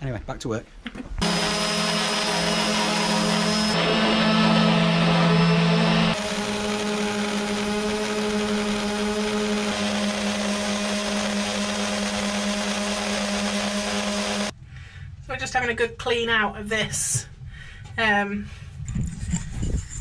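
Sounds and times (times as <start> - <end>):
orbital sanders grinding paint: 1.2 - 14.5.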